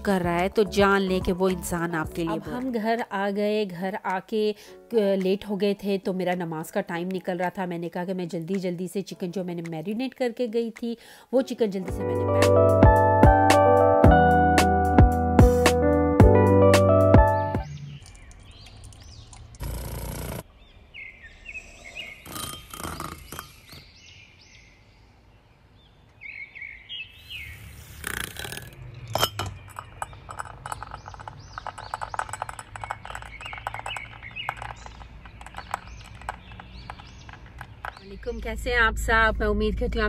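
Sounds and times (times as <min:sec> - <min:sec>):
birds chirping: 0:17.1 - 0:39.1
handheld frother clicking: 0:30.0 - 0:38.0.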